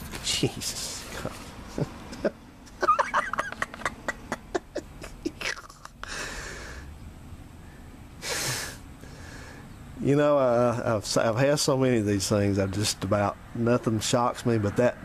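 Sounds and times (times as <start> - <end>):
man chuckling: 0.3 - 6.3
breathy exhales: 6.0 - 6.9, 7.6 - 9.7.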